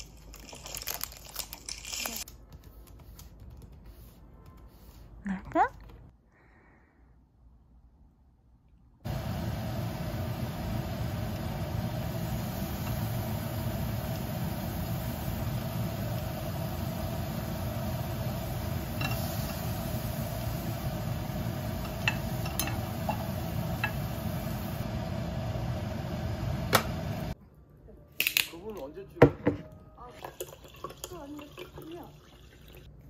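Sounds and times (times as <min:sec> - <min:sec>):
range hood fan humming: 0:09.0 - 0:27.4
utensils clicking against pot: 0:18.9 - 0:19.6, 0:21.8 - 0:24.1.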